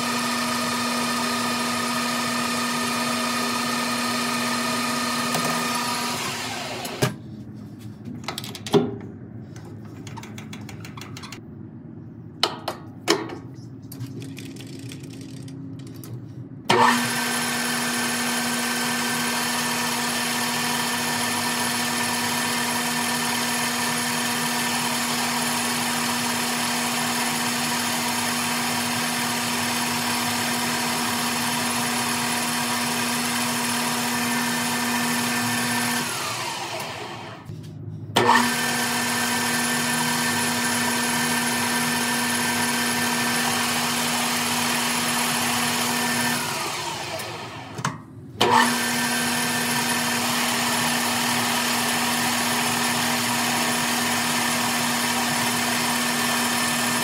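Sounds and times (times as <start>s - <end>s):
metal lathe whining: 0.0s - 7.2s, 48.4s - 57.0s.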